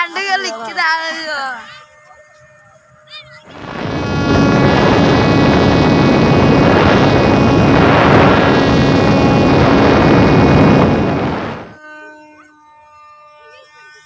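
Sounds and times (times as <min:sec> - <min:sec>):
rush of air: 0:03.5 - 0:11.8
model plane motor whine: 0:03.5 - 0:14.0.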